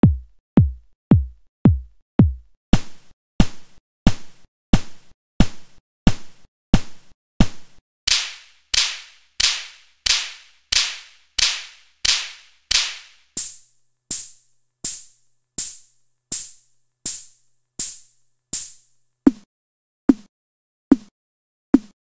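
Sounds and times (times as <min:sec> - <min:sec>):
synthesizer percussive noise hits: 0:08.1 - 0:14.3.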